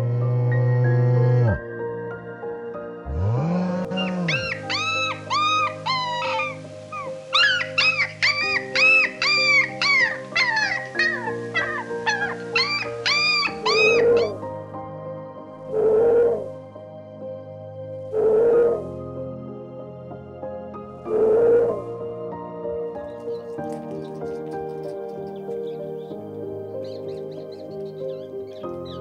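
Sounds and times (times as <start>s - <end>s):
low animal call: 0.0s - 1.6s, 3.1s - 14.4s, 15.7s - 16.5s, 18.1s - 18.9s, 21.1s - 21.9s
soft background music: 0.0s - 29.0s
animal whining calls: 3.2s - 14.4s.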